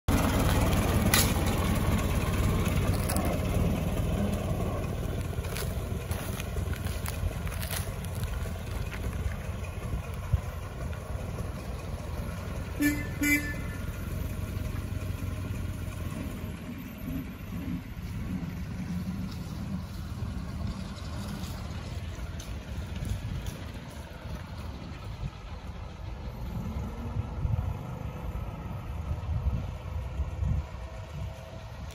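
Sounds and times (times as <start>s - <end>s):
old car engine running: 0.1s - 31.9s
car horn toots: 12.7s - 14.0s.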